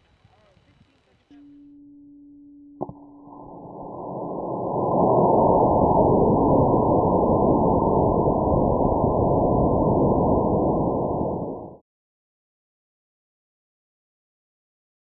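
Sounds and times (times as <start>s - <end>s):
steady low hum: 0.0s - 11.8s.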